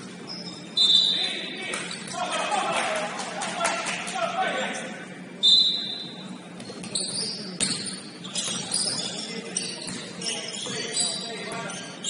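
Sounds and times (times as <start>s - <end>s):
sneakers squeaking: 0.0s - 2.3s, 5.4s - 12.0s
basketball bouncing: 9.8s - 10.8s.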